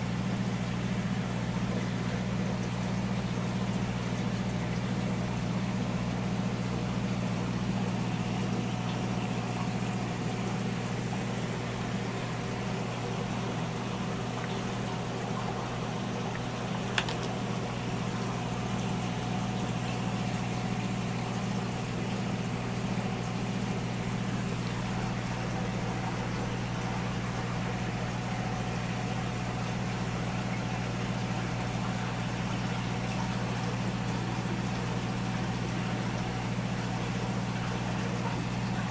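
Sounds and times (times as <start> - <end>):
aquarium pump hum: 0.0 - 38.9
sharp click: 17.0 - 17.4.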